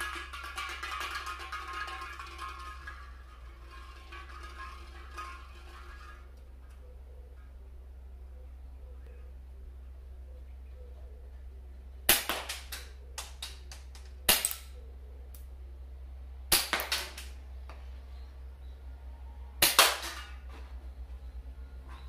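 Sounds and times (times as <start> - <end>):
replica pistol firing cracks: 12.1 - 14.8.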